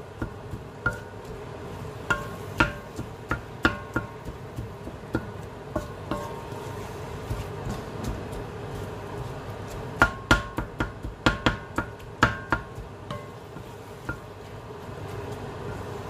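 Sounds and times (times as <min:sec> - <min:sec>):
spatula clacking against wok: 0:00.0 - 0:06.6, 0:09.7 - 0:14.5
frying hiss: 0:00.0 - 0:16.0.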